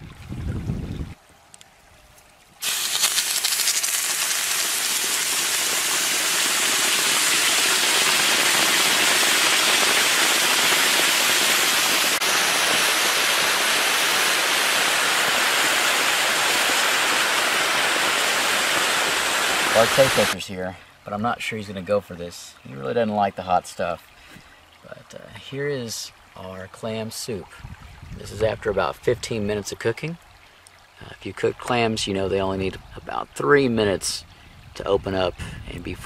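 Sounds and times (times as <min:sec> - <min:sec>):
hot stone sizzling in boiling soup: 0:02.6 - 0:20.4.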